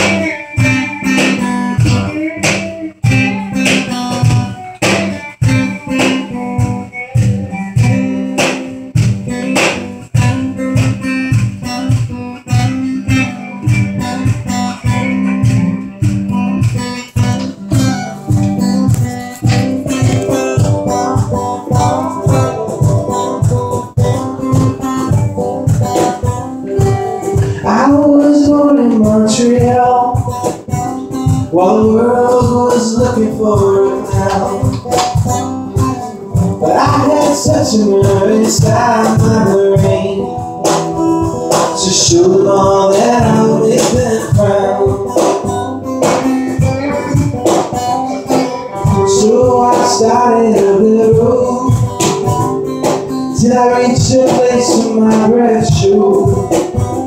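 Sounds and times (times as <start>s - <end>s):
acoustic guitar strumming chords: 0.0s - 57.0s
man singing: 26.6s - 52.6s, 53.2s - 57.0s.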